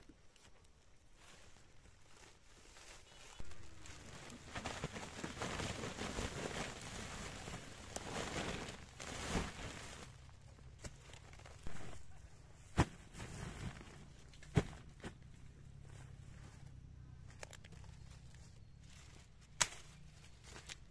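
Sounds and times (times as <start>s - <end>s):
corn cobs tumbling into sack: 2.3s - 15.3s
sack thud: 12.7s - 13.9s.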